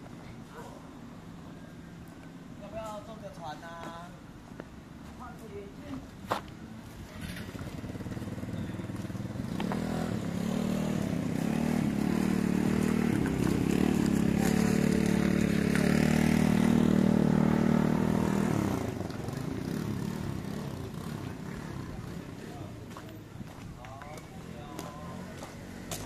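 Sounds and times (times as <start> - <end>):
motor scooter engine: 7.1 - 23.1.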